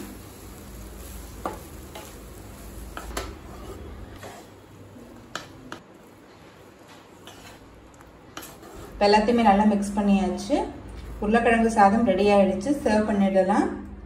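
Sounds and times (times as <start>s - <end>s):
faint sizzle: 0.0s - 13.4s
spatula scraping rice in pan: 1.0s - 4.7s, 5.3s - 9.0s.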